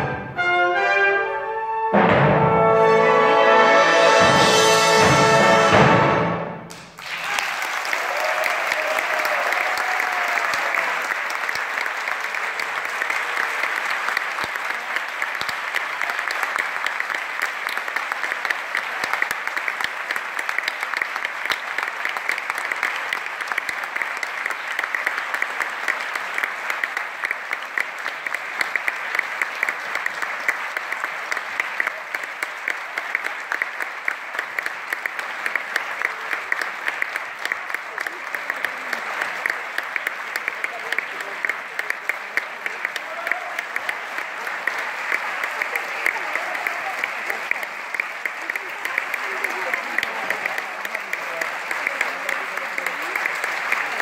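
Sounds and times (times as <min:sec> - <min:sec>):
orchestra note: 0:00.0 - 0:06.7
audience applauding: 0:03.6 - 0:54.0.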